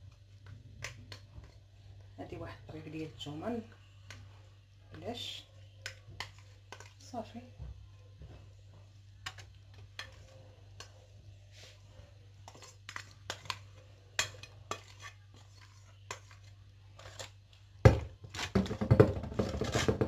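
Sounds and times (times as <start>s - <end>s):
clicks and scrapes on mixing bowl: 14.2s - 17.4s.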